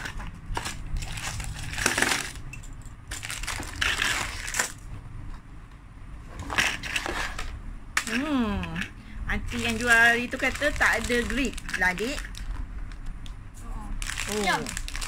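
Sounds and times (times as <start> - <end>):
plastic parts clattering on table: 0.0 - 4.8, 6.4 - 9.0
cardboard and plastic packaging rustling: 0.0 - 4.9, 9.5 - 13.1, 14.0 - 15.0.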